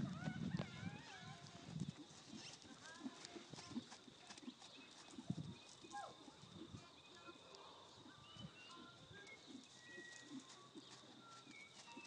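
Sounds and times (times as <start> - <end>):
hoofbeats on dirt: 0.0 - 12.0
small birds chirping: 0.1 - 12.0.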